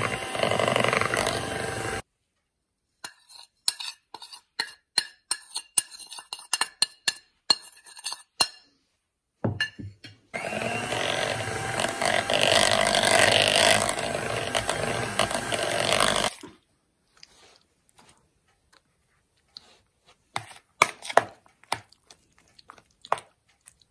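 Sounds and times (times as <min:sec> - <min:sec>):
electric hand mixer whirring: 0:00.0 - 0:02.0, 0:10.4 - 0:16.3
metal spoon scraping a bowl: 0:00.0 - 0:02.0, 0:03.0 - 0:08.7.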